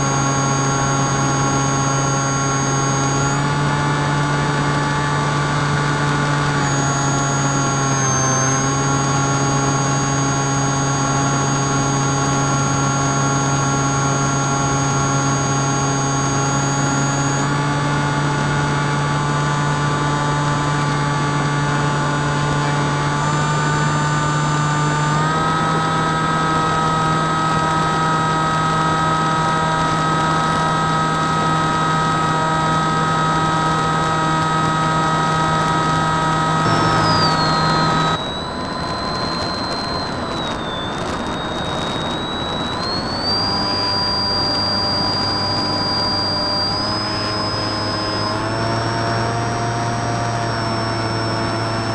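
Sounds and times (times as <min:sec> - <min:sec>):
ultralight engine and propeller drone: 0:00.0 - 0:51.9.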